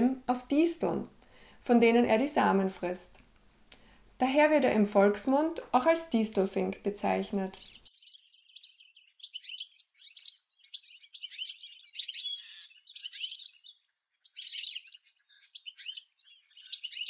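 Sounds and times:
goldfinch twittering song: 7.3 - 17.0.

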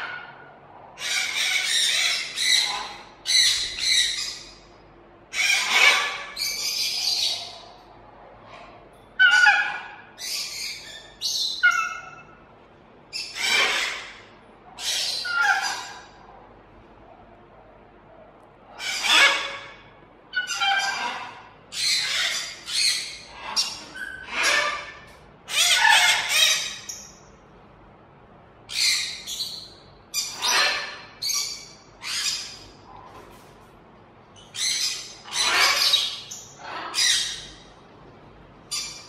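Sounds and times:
macaws squawking: 1.0 - 4.6, 5.3 - 7.8, 9.2 - 12.4, 13.2 - 16.2, 18.7 - 27.1, 28.7 - 32.7, 34.5 - 37.6.

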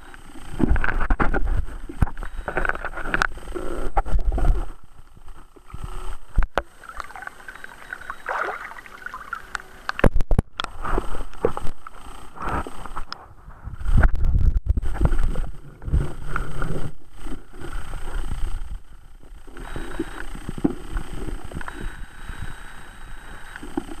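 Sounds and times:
water splashing and sloshing: 6.6 - 10.0.

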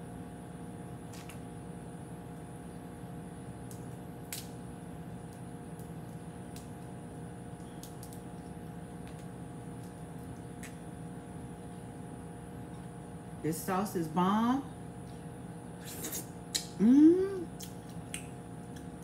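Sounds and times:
background hum: 0.0 - 19.0
shell cracking while peeled: 3.6 - 10.8, 17.6 - 19.0.

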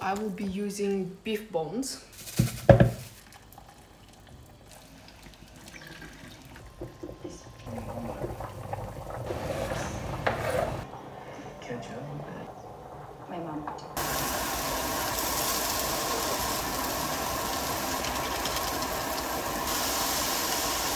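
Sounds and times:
tap water filling a saucepan: 3.2 - 9.1, 14.0 - 20.9.

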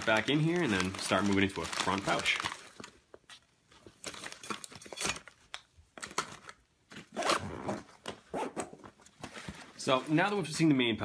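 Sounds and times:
backpack zipper rasping: 7.1 - 8.8.

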